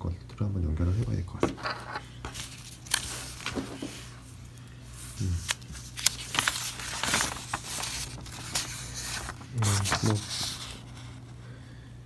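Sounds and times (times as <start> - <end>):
low hum of a voice: 0.0 - 1.6, 4.7 - 5.9, 9.0 - 11.8
paper crackling and rustling: 1.6 - 11.4.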